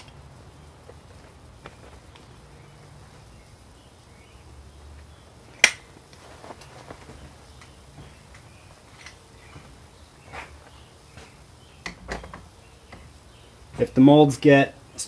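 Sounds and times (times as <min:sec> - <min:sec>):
sharp metallic click of mold: 0:05.6 - 0:05.9.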